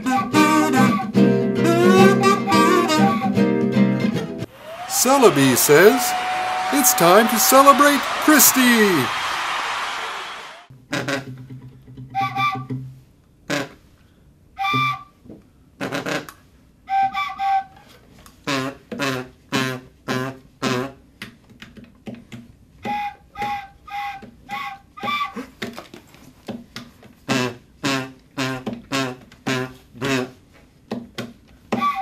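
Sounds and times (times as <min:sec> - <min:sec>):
wooden flute toots: 0:14.6 - 0:15.1, 0:16.9 - 0:17.9, 0:22.8 - 0:25.4, 0:31.8 - 0:32.0.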